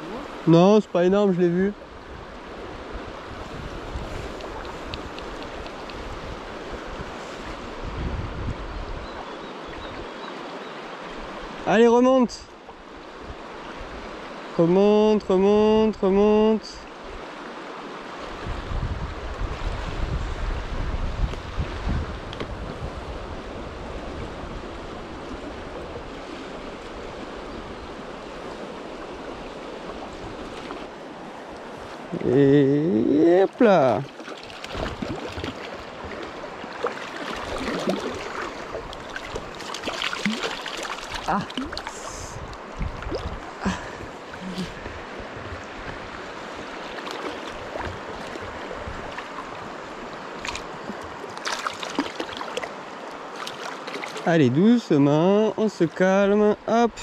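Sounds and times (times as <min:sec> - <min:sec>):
river rushing: 0:00.0 - 0:15.4, 0:21.4 - 0:57.0
small water splashes: 0:04.2 - 0:06.6, 0:29.1 - 0:31.0, 0:33.9 - 0:44.9, 0:45.6 - 0:54.3.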